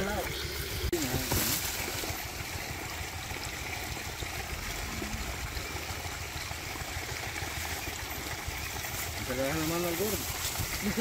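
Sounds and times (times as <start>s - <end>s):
water running from a hose: 0.0s - 11.0s.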